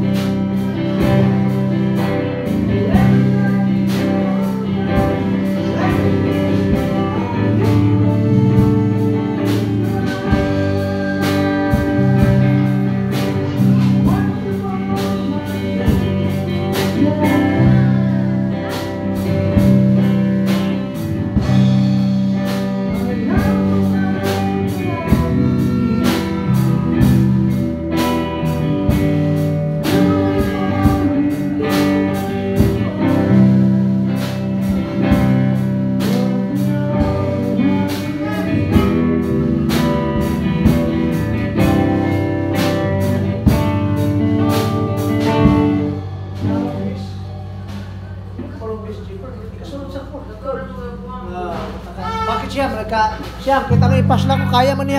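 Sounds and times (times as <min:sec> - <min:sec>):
drum kit with cymbals: 0:00.0 - 0:48.5
electric guitar: 0:00.0 - 0:48.6
man singing into microphone: 0:00.7 - 0:18.4, 0:22.8 - 0:27.2, 0:29.8 - 0:33.8, 0:36.0 - 0:39.6.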